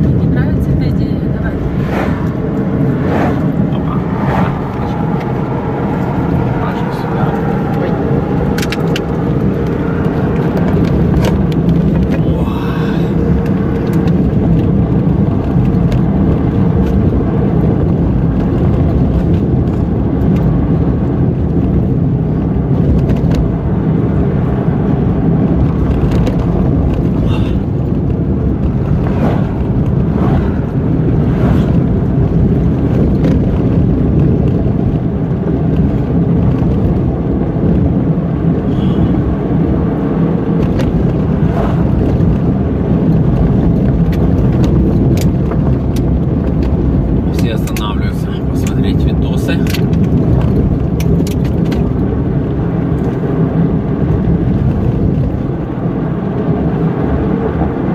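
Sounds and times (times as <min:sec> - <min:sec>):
car road and engine rumble: 0:00.0 - 0:57.9.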